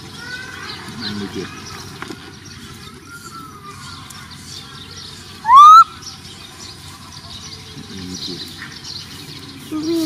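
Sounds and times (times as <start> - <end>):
baby macaque cooing: 5.4 - 5.9.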